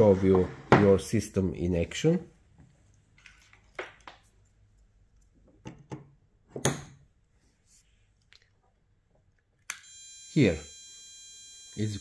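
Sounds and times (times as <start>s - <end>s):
wires and parts clicking: 9.2s - 9.9s
high-pitched electronic whine: 9.8s - 12.0s.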